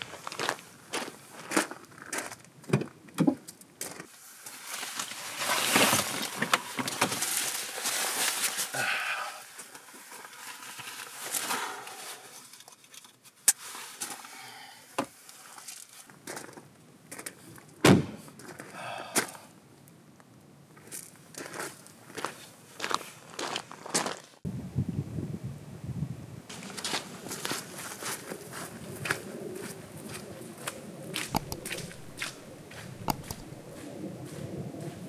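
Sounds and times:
footsteps on gravel: 0.0s - 2.6s, 15.6s - 19.4s, 20.8s - 24.4s, 26.5s - 35.0s
clothing and backpack rustling: 3.9s - 8.7s, 26.5s - 34.0s.

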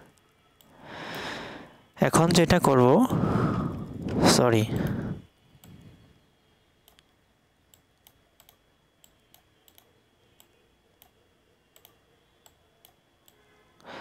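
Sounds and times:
low room hiss: 0.0s - 14.0s
computer mouse clicks: 4.0s - 6.0s, 6.8s - 13.4s.

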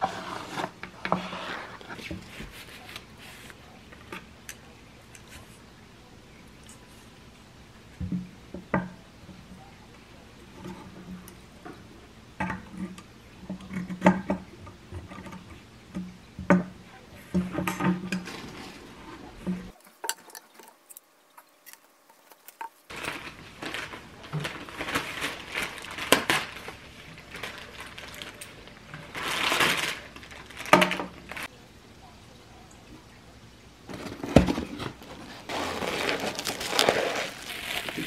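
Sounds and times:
plastic bag crinkling: 21.5s - 31.5s, 33.9s - 38.0s.

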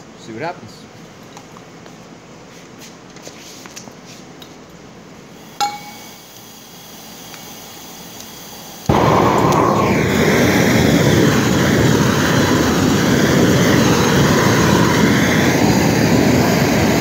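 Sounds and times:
gas torch roaring: 5.3s - 17.0s
metallic clink with ring: 5.6s - 6.2s.

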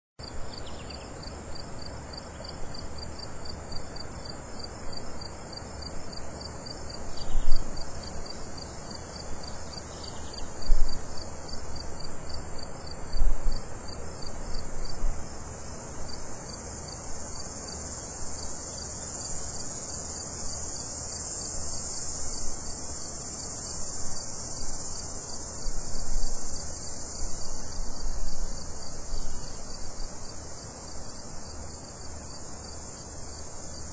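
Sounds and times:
cicadas buzzing: 0.2s - 33.9s.

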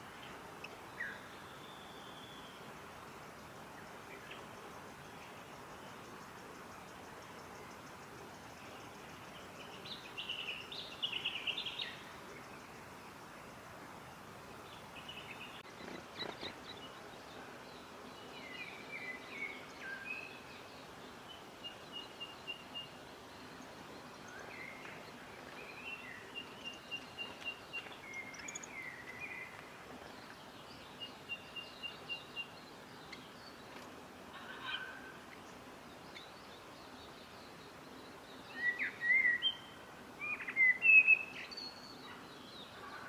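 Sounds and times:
background hiss: 0.0s - 43.0s
birds chirping: 14.6s - 43.0s.

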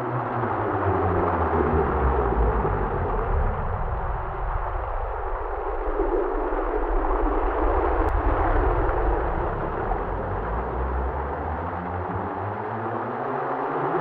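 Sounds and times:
thunder rumble: 0.7s - 11.9s.

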